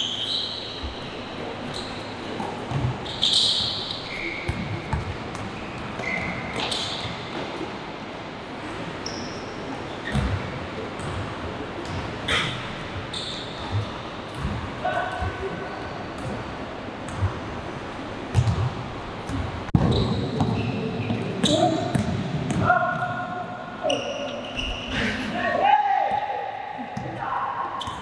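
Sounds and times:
sneaker squeaks: 0:00.0 - 0:07.4, 0:09.0 - 0:11.2, 0:11.8 - 0:16.4, 0:19.3 - 0:22.8, 0:23.8 - 0:25.0, 0:27.7 - 0:28.0
basketball bounces: 0:02.6 - 0:03.7, 0:04.4 - 0:07.5, 0:10.0 - 0:11.2, 0:13.6 - 0:15.5, 0:16.2 - 0:16.5, 0:17.1 - 0:17.5, 0:18.3 - 0:23.1, 0:27.0 - 0:27.2.

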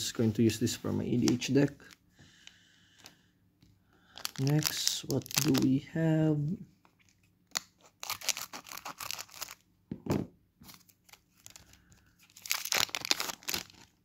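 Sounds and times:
foil wrapper tearing and crinkling: 0:04.1 - 0:05.7, 0:07.5 - 0:09.6, 0:10.7 - 0:14.0.

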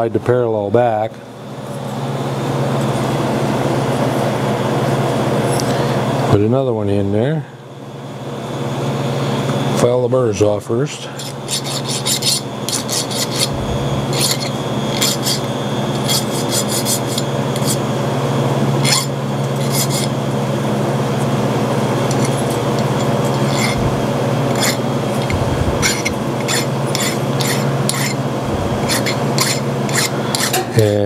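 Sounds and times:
low machine hum: 0:00.0 - 0:31.0
hand file on metal: 0:11.1 - 0:17.8, 0:18.8 - 0:20.2, 0:22.1 - 0:30.7.

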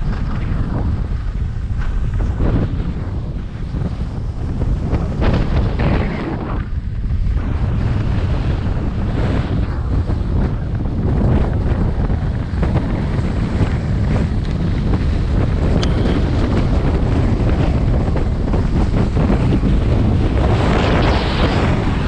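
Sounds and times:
wind buffeting microphone: 0:00.0 - 0:22.0
skis scraping on snow: 0:11.2 - 0:22.0.

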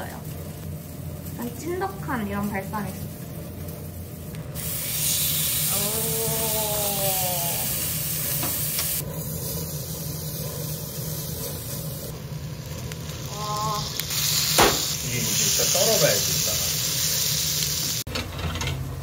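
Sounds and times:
steak sizzling in frying pan: 0:04.6 - 0:18.1.

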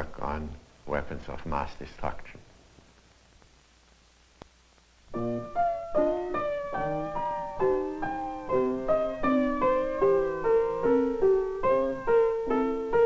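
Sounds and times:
slow piano melody: 0:05.1 - 0:13.0.

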